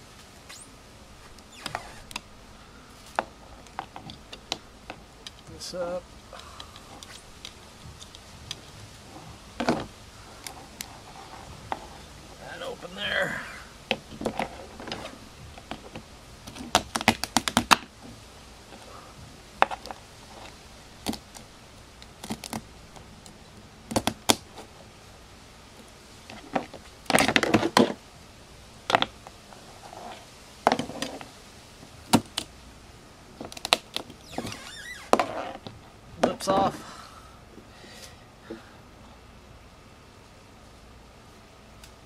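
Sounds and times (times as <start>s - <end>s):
crab shells cracking: 22.1s - 22.6s.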